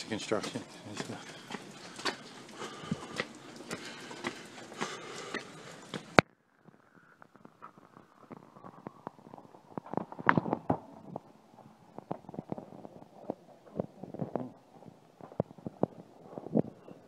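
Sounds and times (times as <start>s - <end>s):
footsteps on wet brick paving: 0.0s - 6.2s, 7.5s - 17.0s
microphone handling rubs: 6.7s - 17.0s.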